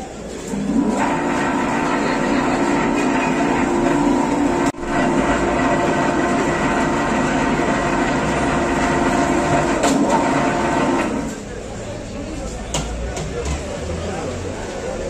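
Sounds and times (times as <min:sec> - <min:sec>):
machine humming: 0:00.6 - 0:11.3.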